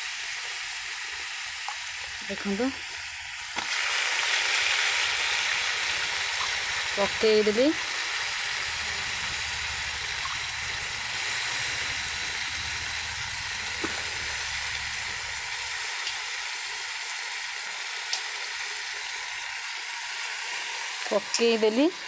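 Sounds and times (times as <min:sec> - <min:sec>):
meat sizzling in hot oil: 0:00.0 - 0:22.0
low rumble: 0:08.5 - 0:15.8.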